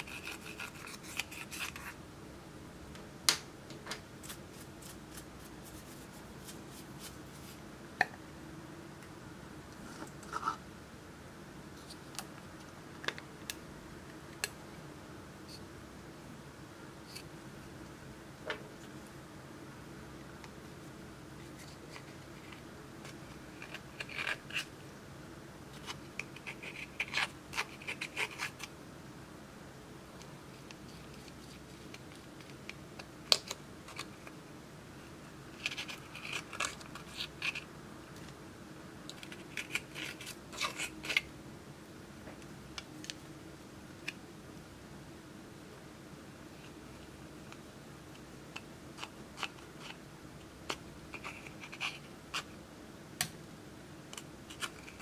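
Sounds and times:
metal spatula scraping makeup: 0:00.0 - 0:02.0, 0:39.1 - 0:41.3.

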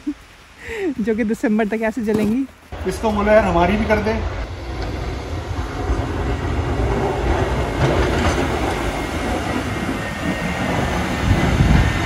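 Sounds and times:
snow plow rumbling and scraping: 0:02.7 - 0:12.0.

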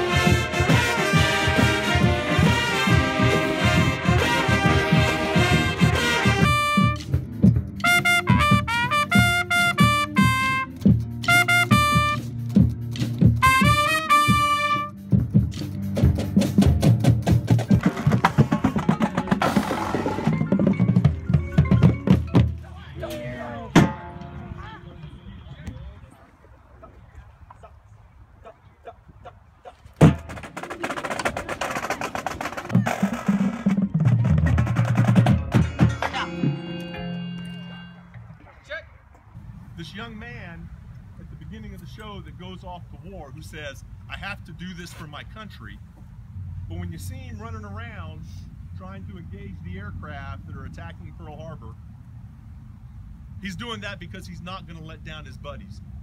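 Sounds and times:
trumpets playing melody: 0:00.0 - 0:12.6, 0:13.4 - 0:15.1, 0:35.2 - 0:38.3
steady low beat: 0:00.0 - 0:25.2
marching band brass playing: 0:00.0 - 0:25.6, 0:30.0 - 0:38.3.

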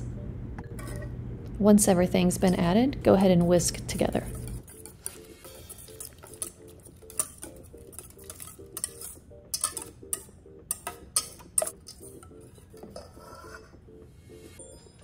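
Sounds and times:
whisk clinking in metal bowl: 0:03.9 - 0:13.6.

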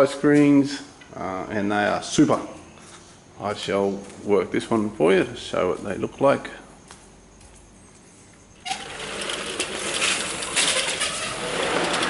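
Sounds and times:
sliding screen door rattling: 0:08.6 - 0:12.0.

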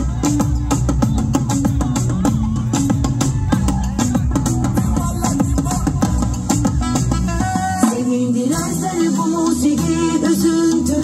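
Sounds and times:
live pop band: 0:00.0 - 0:11.0
woman singing: 0:04.8 - 0:11.0.

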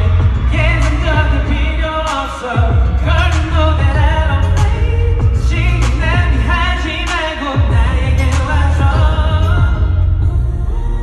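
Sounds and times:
man singing into a microphone: 0:00.0 - 0:10.3
pop backing track with heavy bass: 0:00.0 - 0:11.0.

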